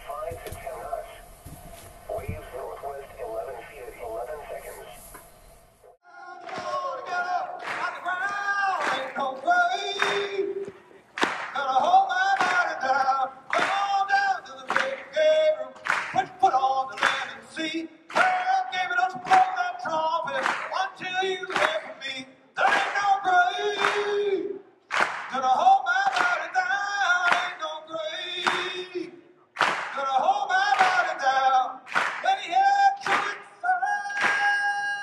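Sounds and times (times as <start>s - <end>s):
men singing unaccompanied: 6.0s - 10.7s, 11.5s - 24.5s, 25.3s - 29.1s, 29.8s - 35.0s.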